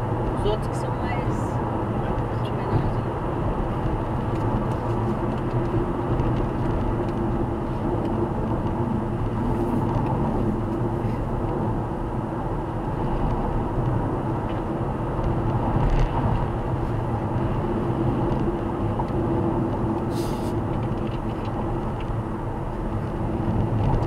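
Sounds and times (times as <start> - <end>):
car road and engine noise: 0.0 - 24.0.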